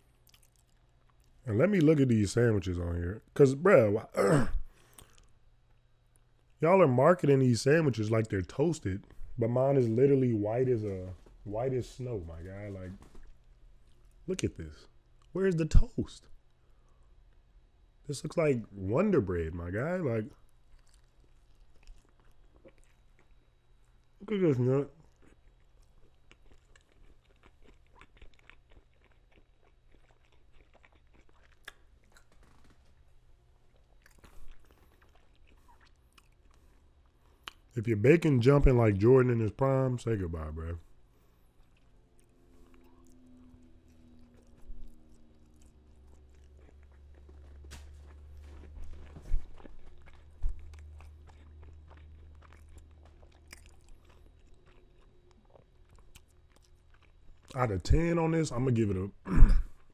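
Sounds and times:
wet chewing with mouth clicks: 0.0 - 1.9, 4.8 - 6.6, 20.3 - 24.4, 25.0 - 37.8, 40.8 - 57.6.

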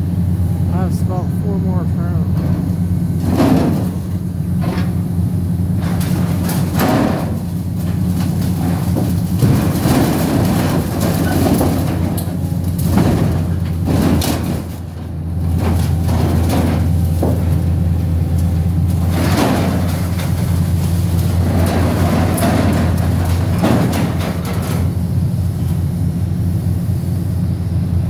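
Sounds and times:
diesel engine running: 0.0 - 28.0
metal pipes clanking and rattling: 2.4 - 5.0, 5.7 - 25.0.

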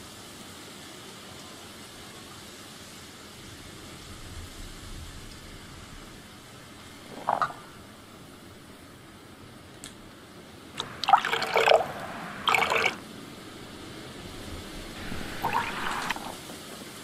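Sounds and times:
liquid pouring into metal bowl: 7.1 - 7.8, 10.8 - 13.0, 15.0 - 16.4.

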